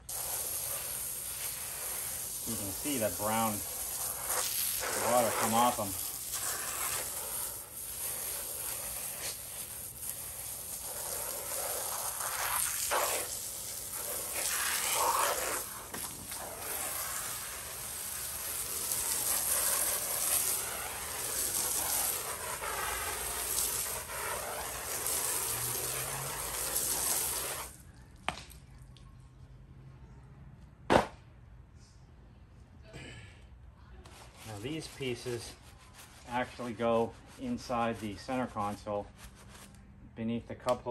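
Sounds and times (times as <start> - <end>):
water spraying and splashing: 0.0 - 27.8
sharp knock: 30.9 - 31.2.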